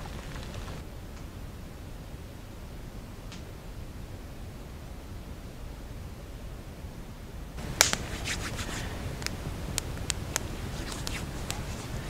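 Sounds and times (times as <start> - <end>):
campfire crackling and popping: 0.0 - 1.3, 7.6 - 12.0.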